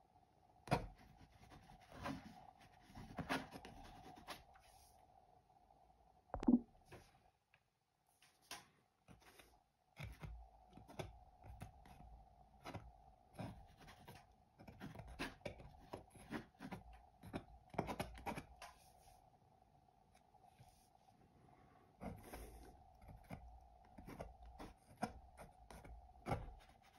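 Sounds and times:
palette knife scraping paint: 0.7 - 4.8, 9.1 - 19.1, 22.0 - 26.9.

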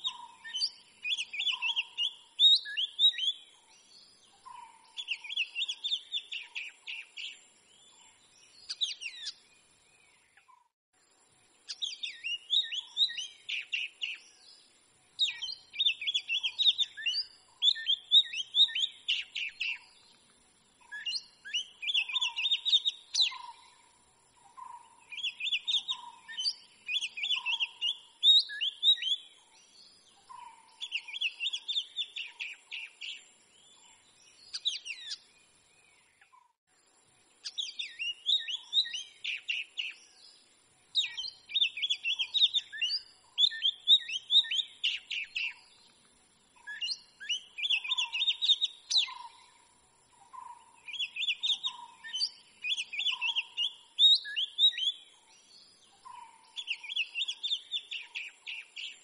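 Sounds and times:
bird singing whistled phrases: 0.0 - 3.5, 5.0 - 7.4, 8.6 - 9.4, 11.7 - 14.3, 15.2 - 19.9, 20.8 - 23.6, 25.1 - 29.4, 30.8 - 33.8, 34.4 - 35.2, 37.4 - 40.1, 41.0 - 45.7, 46.6 - 49.4, 50.8 - 55.2, 56.6 - 59.0.

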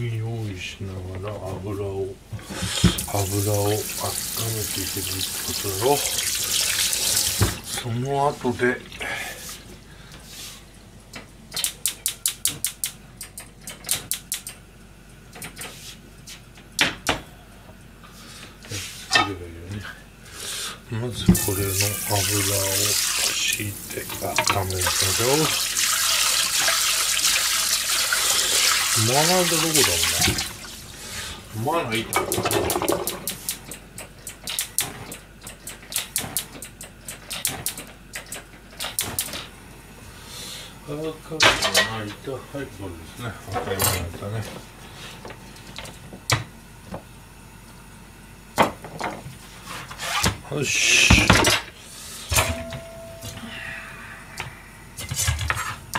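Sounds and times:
kitchen utensils clattering: 24.0 - 25.6, 31.8 - 33.3, 41.4 - 42.0, 52.3 - 53.4.

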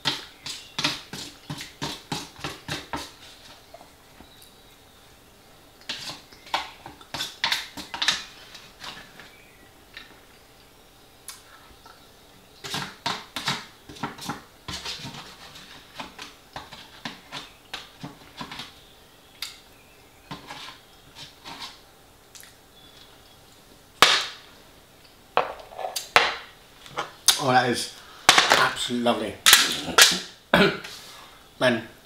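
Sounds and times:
fork scraping foil tray: 12.6 - 17.5, 20.3 - 21.8.

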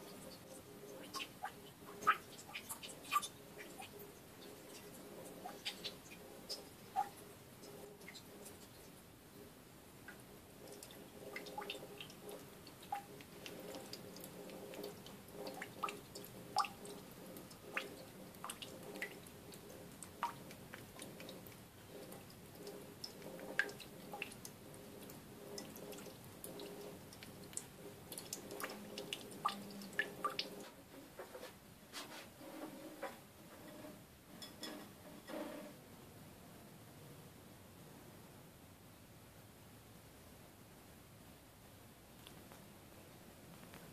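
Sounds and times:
water dripping into a metal sink: 0.0 - 8.9, 10.0 - 30.6
water splashing in a bowl: 0.0 - 8.9, 10.1 - 30.8
faint steady hum: 0.0 - 43.9.

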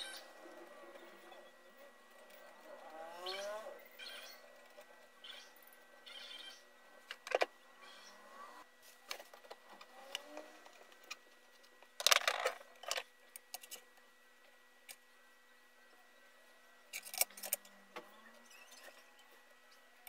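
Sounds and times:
screwdriver and metal parts clicking: 16.9 - 17.7.

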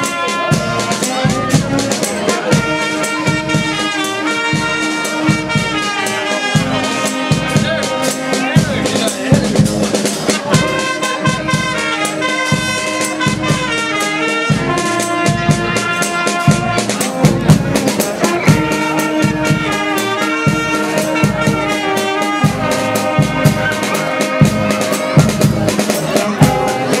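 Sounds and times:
brass band playing: 0.0 - 27.0
steady drum beat: 0.0 - 27.0.

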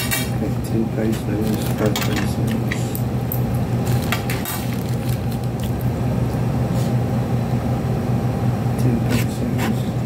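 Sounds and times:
steady low hum: 0.0 - 10.0
wet chewing mouth noises: 5.0 - 6.0.

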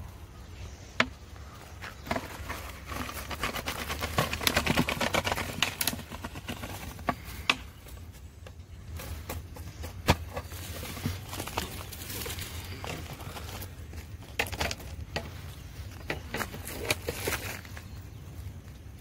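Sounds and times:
plastic bottle rattling: 2.0 - 7.5, 9.1 - 18.0.

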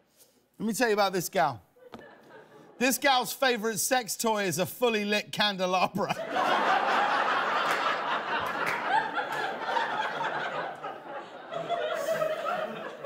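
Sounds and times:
studio audience laughing: 1.8 - 2.9, 6.0 - 13.0.

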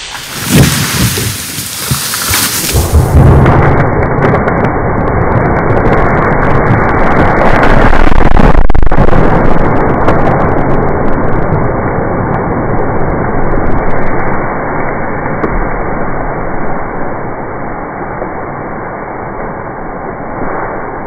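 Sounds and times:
log dragged over ground: 0.0 - 4.6
wood and branches cracking: 0.0 - 11.6.

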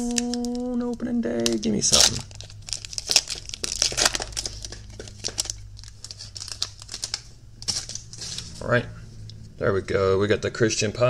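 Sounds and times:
foil wrapper tearing and crinkling: 0.0 - 8.6.

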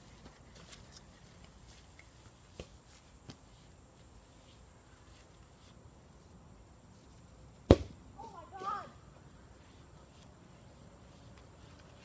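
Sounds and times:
soccer ball kicked thud: 7.6 - 8.0.

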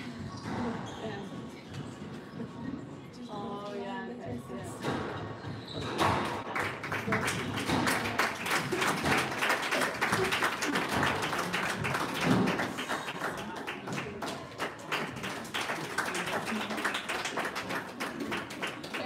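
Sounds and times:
squash ball hitting rackets and walls: 7.6 - 8.1.

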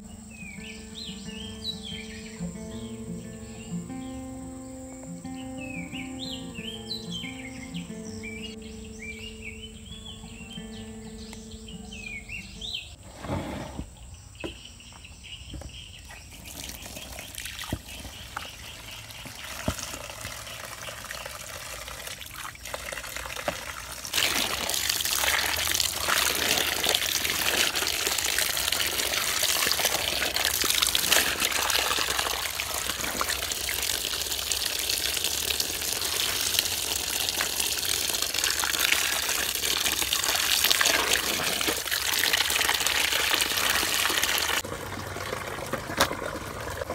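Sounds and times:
outdoor background: 0.0 - 46.9
water pouring into plastic basin: 16.3 - 46.9.

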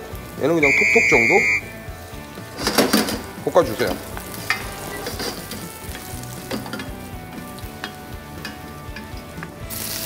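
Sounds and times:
garlic sizzling in oil: 0.0 - 10.0
wooden spatula scraping a pan: 2.6 - 7.1.

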